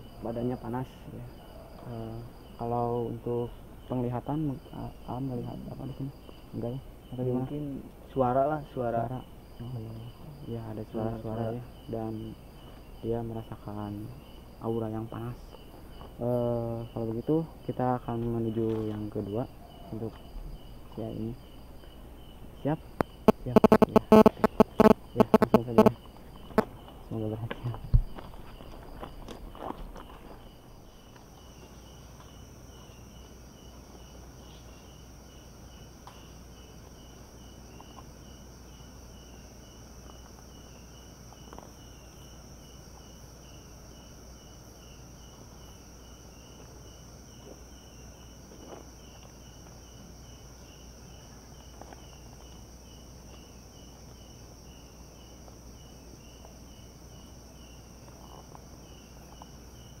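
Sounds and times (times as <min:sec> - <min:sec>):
cricket chirping: 0:00.0 - 1:00.0
insects droning: 0:00.0 - 1:00.0.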